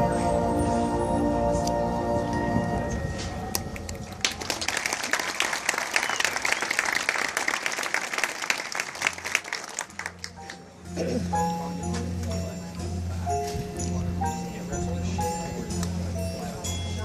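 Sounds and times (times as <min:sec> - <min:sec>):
crowd applauding: 0:03.8 - 0:10.7.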